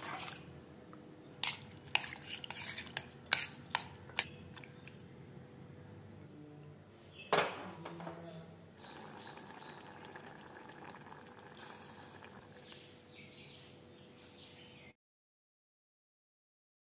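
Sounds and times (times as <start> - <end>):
curry bubbling in a pot: 8.8 - 12.8.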